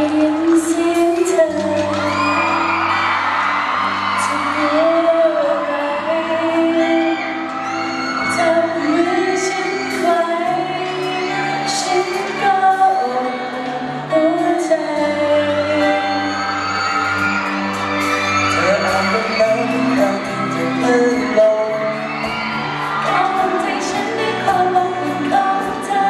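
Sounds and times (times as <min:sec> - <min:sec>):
woman singing into a microphone: 0:00.0 - 0:02.5, 0:04.2 - 0:07.6, 0:08.2 - 0:16.9, 0:23.0 - 0:26.0
backing band playing: 0:01.2 - 0:26.0.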